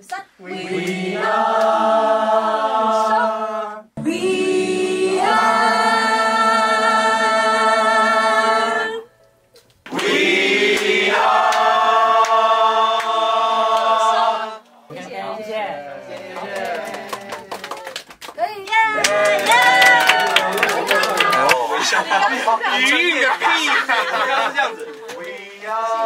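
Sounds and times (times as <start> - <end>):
choir singing sustained chords: 0.4 - 9.2, 9.9 - 16.0.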